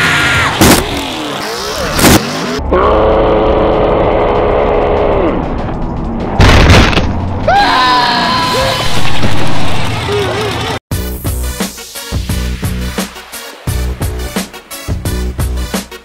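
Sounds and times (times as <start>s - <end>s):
music: 2.0s - 16.0s
booming crash: 6.4s - 7.3s.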